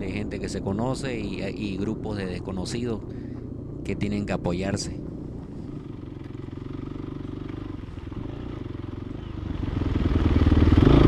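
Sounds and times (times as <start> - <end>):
dirt motorcycle engine running: 0.0 - 11.0.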